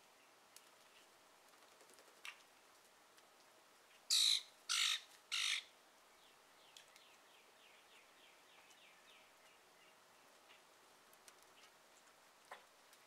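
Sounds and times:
crow cawing: 4.1 - 5.6
small bird chirping: 4.1 - 10.7.

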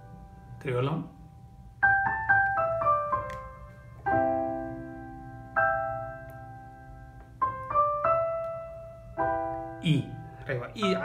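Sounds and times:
electronic keyboard piano notes: 0.0 - 11.0.

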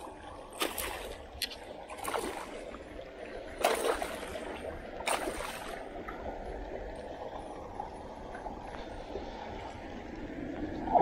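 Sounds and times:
gently moving water: 0.0 - 11.0
fish splashing at the surface: 3.6 - 5.8.

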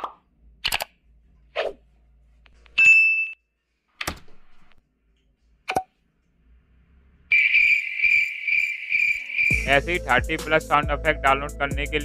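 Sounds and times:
cricket chirping sound effect: 7.3 - 9.6.

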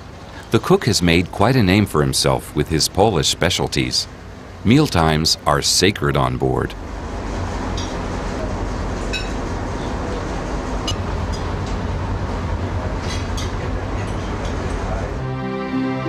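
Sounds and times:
cutlery clinking against plates: 13.0 - 14.8.

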